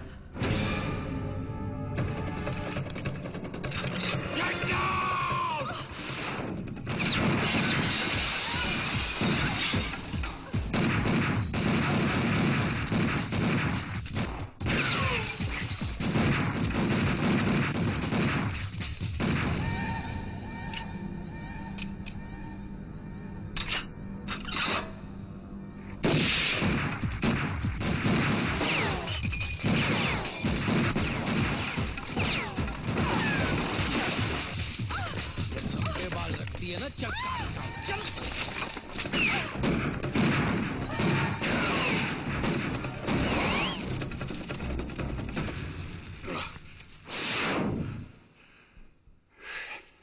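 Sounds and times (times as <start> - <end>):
background music: 0.0 - 5.9, 18.9 - 28.1
rapid gunfire: 6.1 - 15.1, 15.8 - 19.5, 26.0 - 36.2, 39.1 - 46.1
glass shattering: 14.7 - 16.0
pistol gunfire: 26.0 - 34.6.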